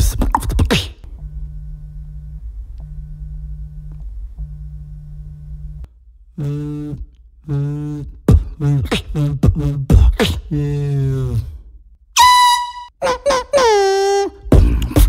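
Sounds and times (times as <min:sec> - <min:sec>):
sharp vocal beats: 0:00.0 - 0:01.0, 0:06.4 - 0:11.5
beatboxer buzzing mouth hums: 0:00.0 - 0:01.4, 0:06.3 - 0:11.6, 0:13.0 - 0:15.0
phone vibrating: 0:01.1 - 0:08.5.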